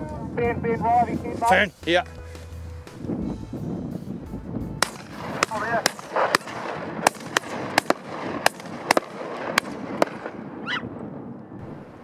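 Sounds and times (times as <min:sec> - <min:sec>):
gunshots: 0:04.8 - 0:10.8.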